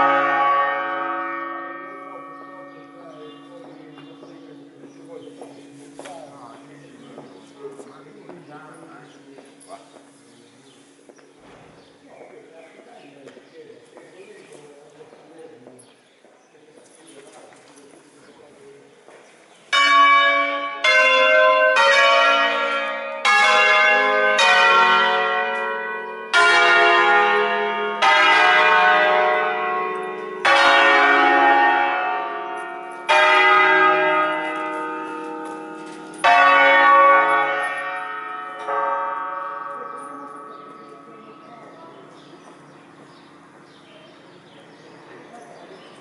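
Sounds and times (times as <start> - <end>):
church bells ringing: 0.0 - 11.2, 19.7 - 46.0.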